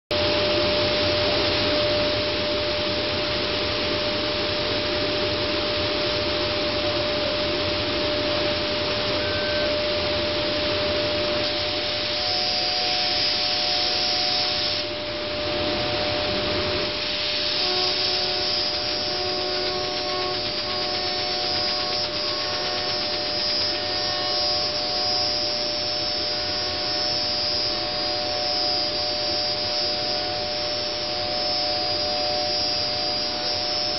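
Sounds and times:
cnc router whine: 0.1s - 33.9s
higher machine whine: 0.1s - 33.9s
constant rushing noise: 14.8s - 26.6s.

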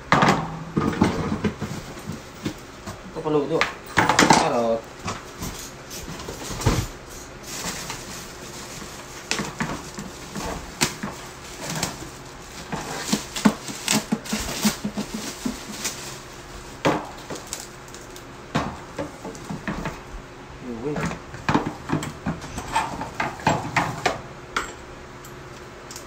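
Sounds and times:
plastic bag crinkling: 7.3s - 18.2s.

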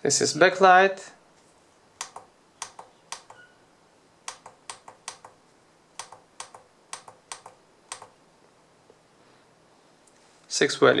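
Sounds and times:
plastic keypad button clicks: 2.0s - 3.5s, 4.3s - 5.4s, 6.0s - 8.1s.

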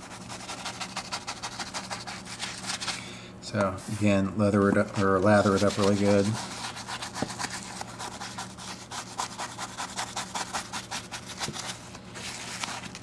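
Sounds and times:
bristle brush scrubbing leather: 5.3s - 11.6s.

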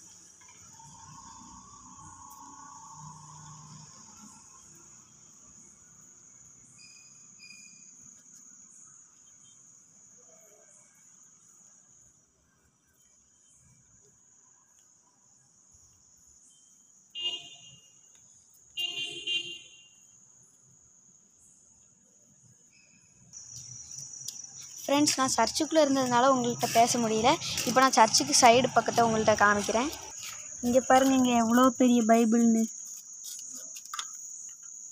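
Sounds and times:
crickets chirping: 0.0s - 34.9s.

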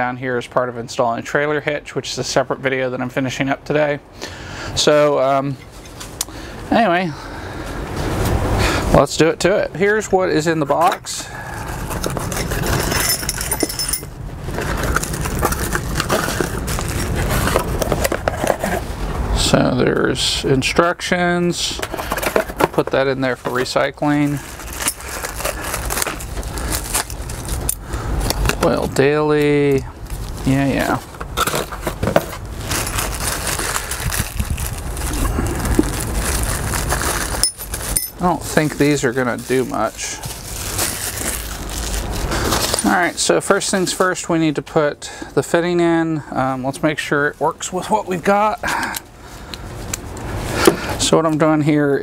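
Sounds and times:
plastic bags crinkling: 11.6s - 18.9s, 23.2s - 27.7s, 30.0s - 44.1s.

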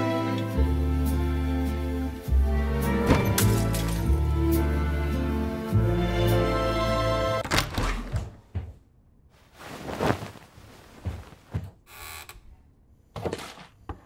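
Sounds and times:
short rustles: 9.4s - 11.8s.

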